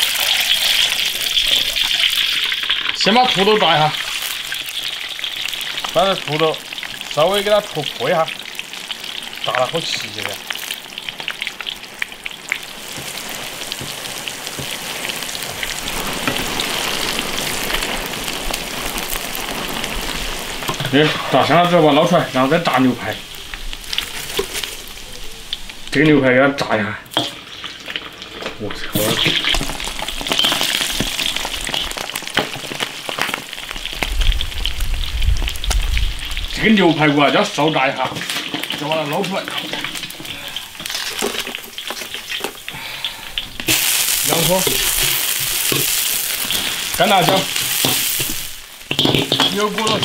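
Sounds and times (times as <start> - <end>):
potatoes sizzling in oil: 0.0 - 50.0.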